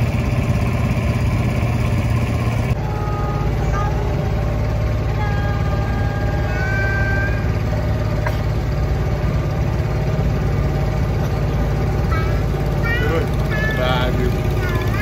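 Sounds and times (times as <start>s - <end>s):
boat motor running: 0.0s - 15.0s.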